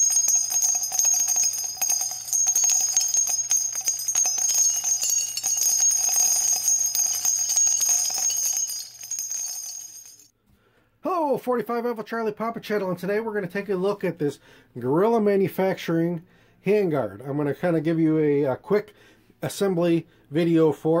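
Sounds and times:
bells jingling: 0.0 - 10.3.

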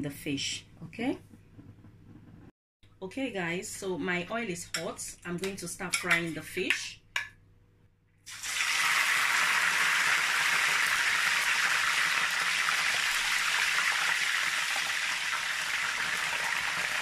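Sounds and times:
fish sizzling in hot oil: 8.3 - 17.0.

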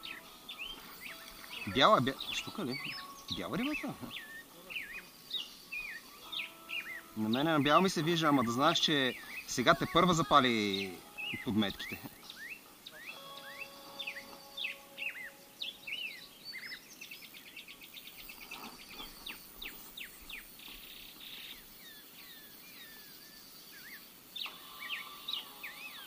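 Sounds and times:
bird fast trill: 0.0 - 16.2
small birds chirping: 0.0 - 26.0.

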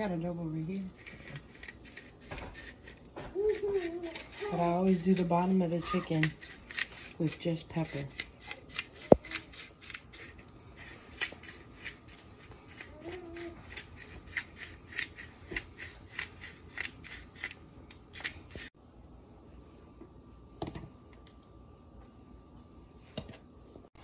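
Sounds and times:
pepper grinder clicking: 6.2 - 13.0, 13.7 - 18.7.

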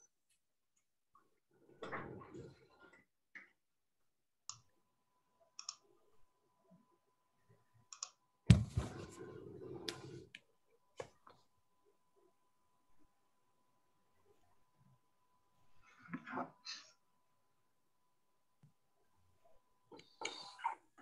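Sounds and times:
thump: 8.5 - 9.0.

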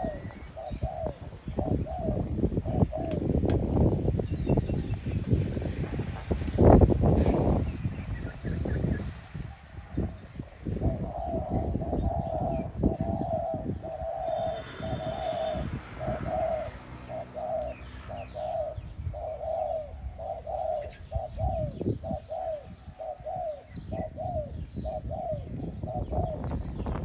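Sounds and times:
dove cooing: 0.0 - 3.4, 7.4 - 27.0.

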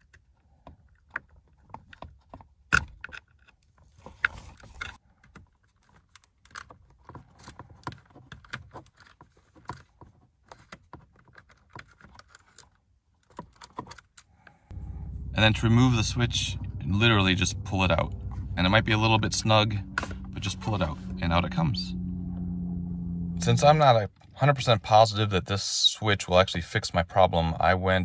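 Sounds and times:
plastic parts clicking and rattling: 0.0 - 14.4.

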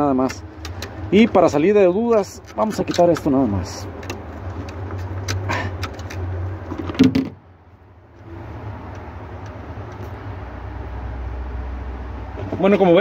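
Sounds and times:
light handling clicks and taps: 0.2 - 6.2.

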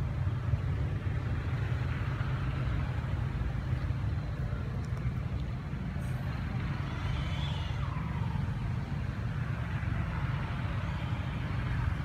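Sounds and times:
faint gliding whistle: 6.8 - 8.6.

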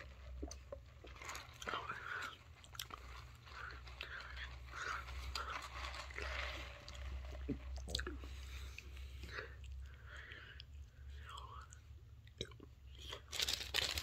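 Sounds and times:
person chewing crunchy food: 0.0 - 10.4.

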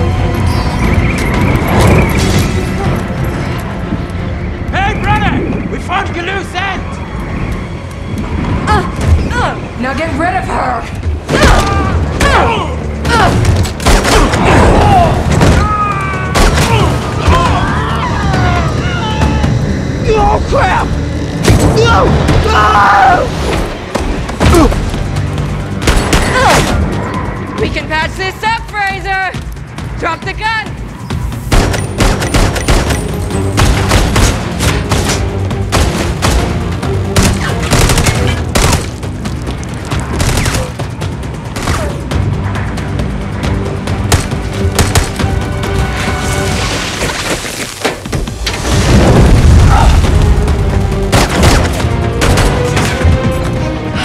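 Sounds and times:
low film score: 0.0 - 54.0
rapid gunshots: 31.5 - 39.0, 40.1 - 40.9
punches and body blows: 44.0 - 45.3.

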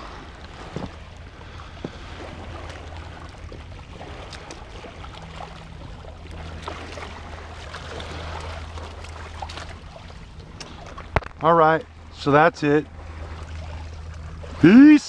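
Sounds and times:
steady low hum: 0.0 - 15.0
water lapping at rocks: 0.0 - 15.0
small clicks and splashes: 2.6 - 11.5.

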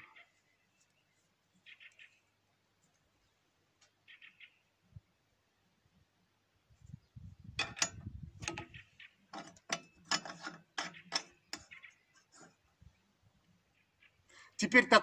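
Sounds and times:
metallic clicks and scrapes: 7.6 - 12.7.

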